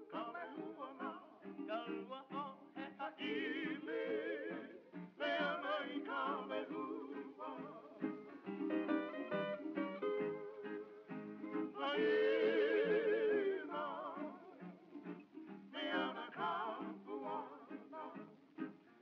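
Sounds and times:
instrumental accompaniment: 4.8s - 19.0s
person singing with vibrato: 11.7s - 14.7s, 15.7s - 18.4s.

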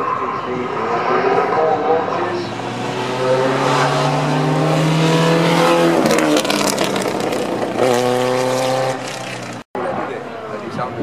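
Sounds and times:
racing car accelerating past: 0.0s - 9.6s.

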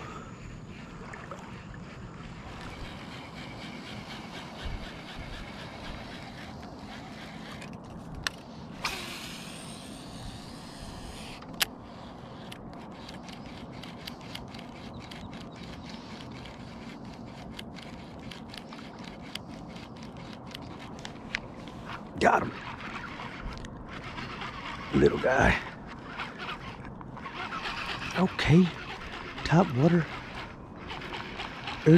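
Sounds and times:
rush of water and air: 0.0s - 14.8s
fishing line hissing off reel: 0.0s - 20.6s, 21.8s - 31.9s
reel ticking: 1.8s - 31.9s
reel click: 2.5s - 21.4s.

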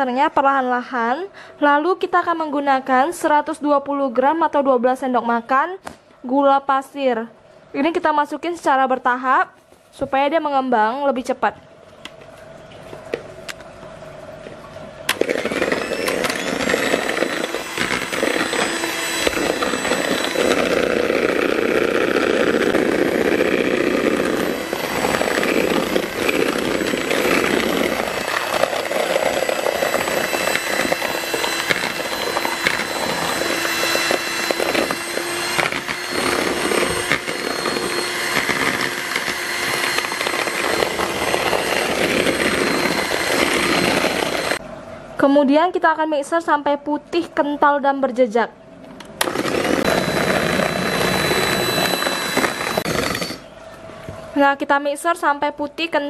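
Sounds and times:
electric hand mixer whining: 15.1s - 44.6s, 49.1s - 53.5s.

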